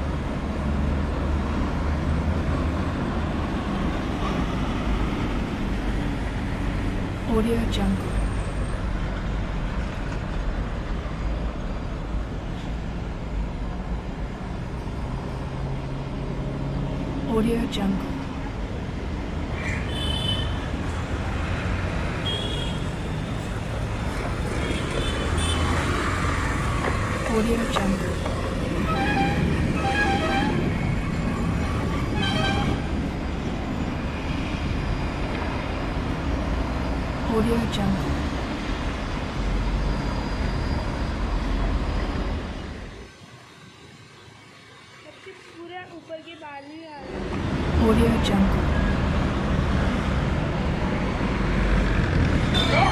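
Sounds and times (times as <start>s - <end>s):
road traffic rumble and hiss: 0.0s - 52.9s
vehicle horns honking: 19.7s - 20.6s, 22.2s - 22.9s, 24.8s - 25.7s, 28.8s - 30.7s, 32.1s - 32.9s.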